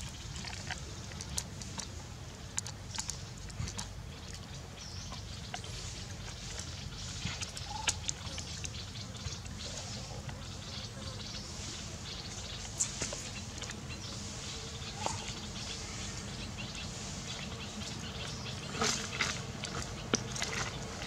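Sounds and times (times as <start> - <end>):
faint bird chirps: 6.8 - 19.3.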